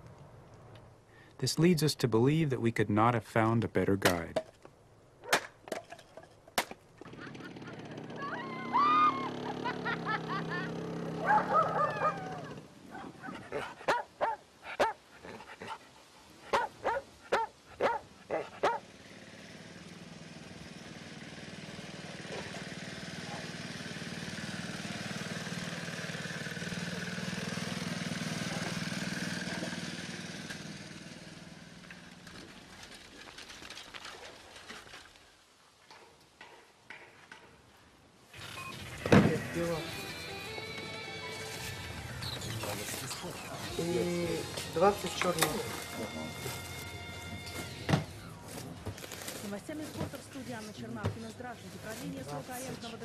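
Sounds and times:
small tractor engine passing: 7.0s - 13.0s, 18.5s - 34.1s, 38.3s - 53.0s
dog barking: 11.2s - 15.0s, 16.5s - 18.9s, 23.2s - 23.5s, 28.5s - 28.8s.

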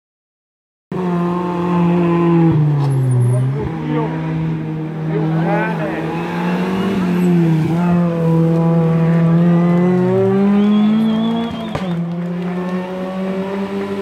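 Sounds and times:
rally car engine revving: 0.9s - 14.0s
sharp crack: 11.1s - 12.2s.

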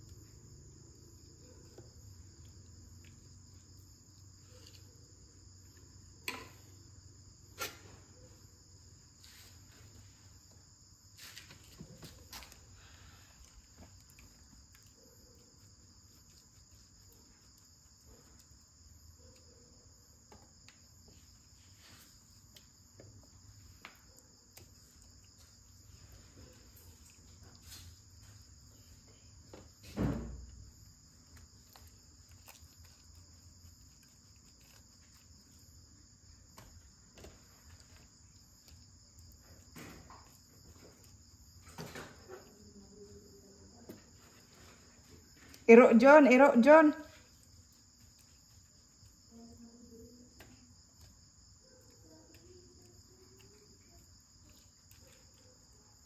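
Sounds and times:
dull thump: 29.8s - 30.4s.

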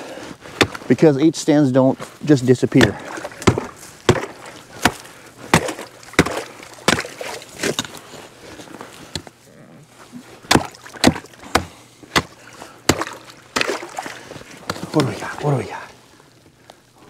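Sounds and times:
hatchet chopping ice: 0.6s - 0.8s, 2.8s - 7.9s, 10.5s - 13.9s.

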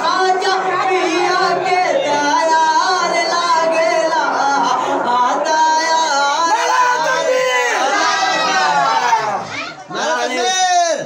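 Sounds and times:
man singing through a microphone: 0.0s - 7.5s.

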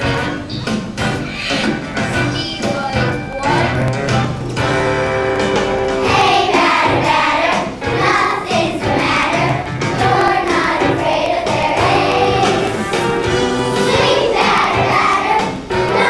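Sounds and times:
musical accompaniment: 0.0s - 16.0s
children singing in chorus: 6.0s - 16.0s.

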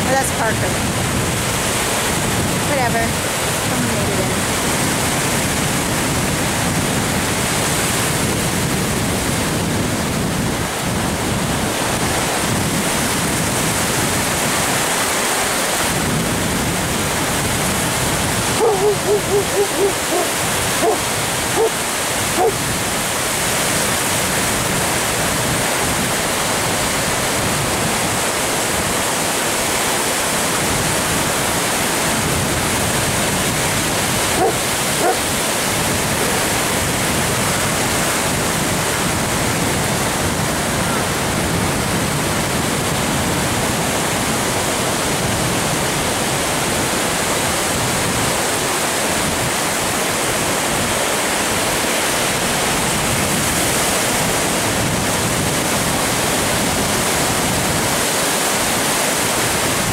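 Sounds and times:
surf breaking on beach: 0.0s - 59.9s.

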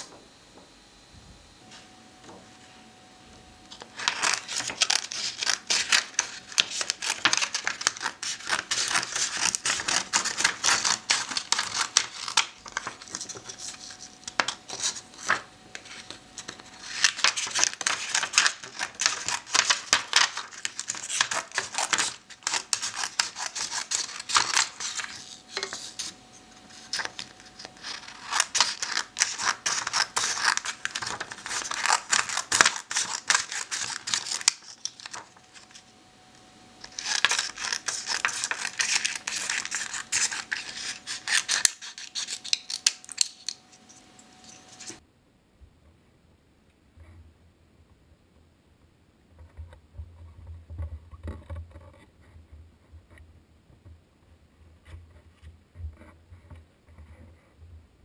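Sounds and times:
scissors snipping paper: 3.8s - 35.8s, 36.8s - 45.0s.

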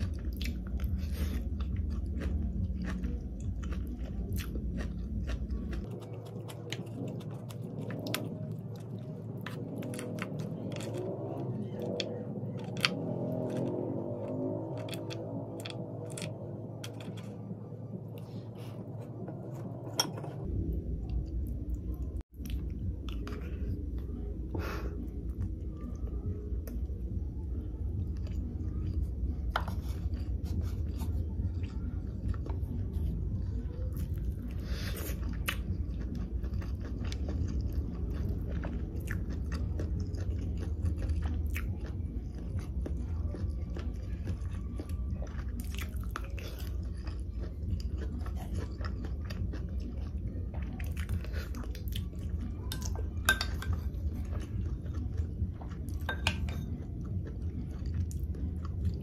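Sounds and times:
close chewing and biting: 0.0s - 59.0s
low hum: 0.0s - 59.0s.

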